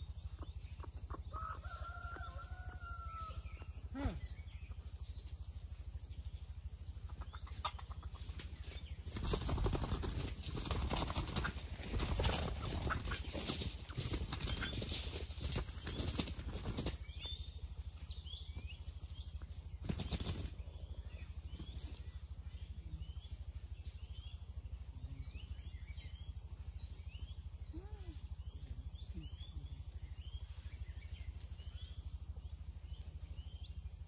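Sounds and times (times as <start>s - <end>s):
rooster crowing: 1.3s - 3.5s
rustling and wing flapping: 8.2s - 17.0s, 19.8s - 20.6s.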